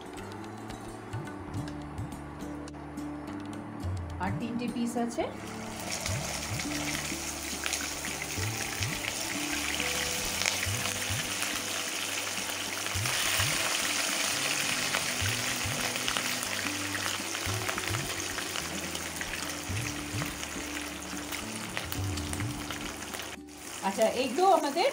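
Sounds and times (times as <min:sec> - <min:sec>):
background music: 0:00.0 - 0:24.9
fish sizzling in hot oil: 0:05.4 - 0:24.9.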